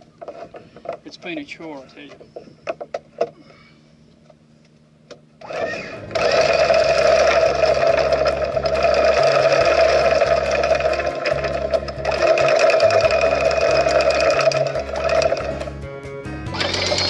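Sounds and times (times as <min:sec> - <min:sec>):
anchor windlass motor whining: 0:05.4 - 0:15.8, 0:16.5 - 0:17.0.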